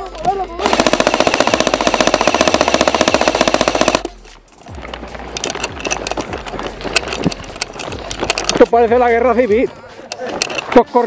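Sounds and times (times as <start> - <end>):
airsoft gun full-auto burst: 0.6 - 4.1.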